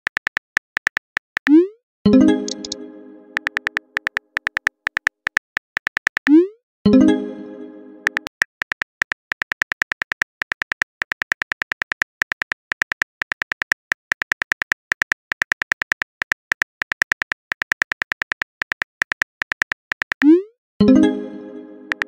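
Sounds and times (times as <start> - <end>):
phone keyboard typing clicks: 0.0 - 1.7, 2.5 - 2.8, 3.4 - 6.4, 8.0 - 20.4.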